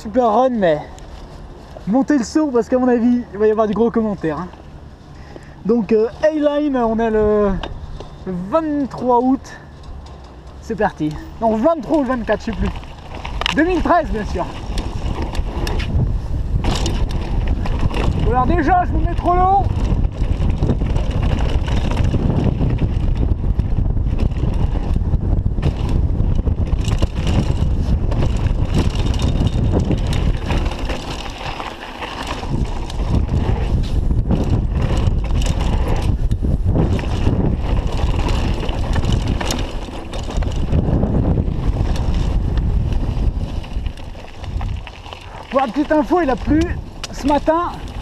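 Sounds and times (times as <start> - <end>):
tyres on loose dirt: 0.0 - 48.0
bike rattling over rocks: 5.6 - 48.0
wind rush on microphone: 10.8 - 48.0.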